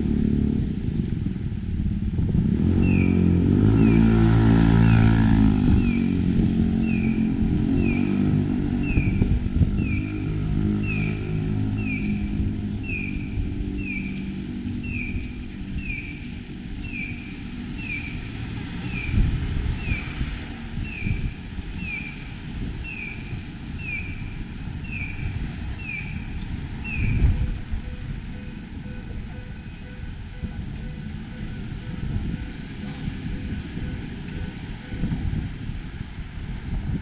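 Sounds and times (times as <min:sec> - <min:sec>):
low traffic rumble: 0:00.0 - 0:37.0
crossing signal chirping: 0:24.9 - 0:35.2.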